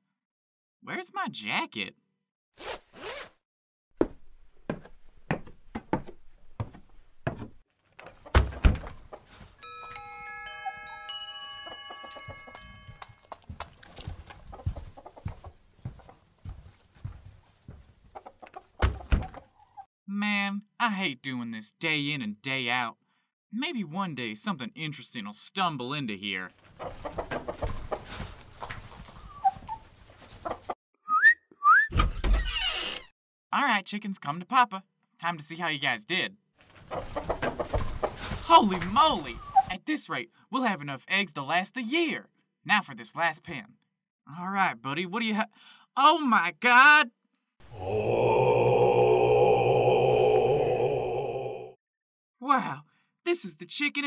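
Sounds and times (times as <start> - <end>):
rustling: 8.9 - 9.6, 13.1 - 18.7
chimes ringing: 9.6 - 13.5
faint chicken clucks: 12.0 - 16.6, 18.0 - 19.8, 29.0 - 30.8
short rising whistles: 31.0 - 32.0.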